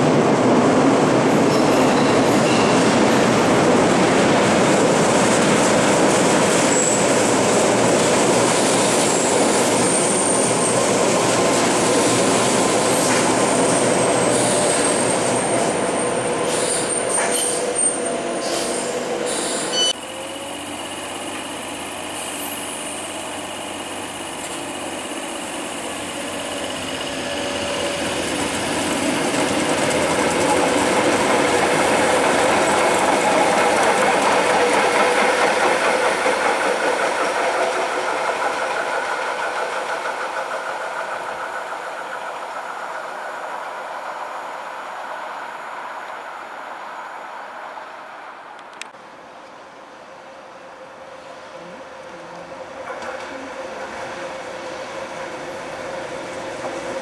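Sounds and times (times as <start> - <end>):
train running along track: 0.0 - 57.0.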